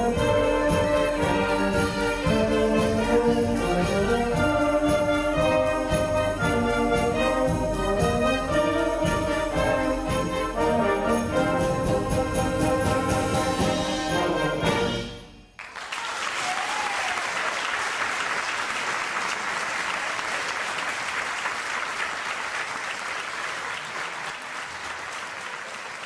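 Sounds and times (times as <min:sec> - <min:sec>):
audience applause: 0:15.6 - 0:26.0.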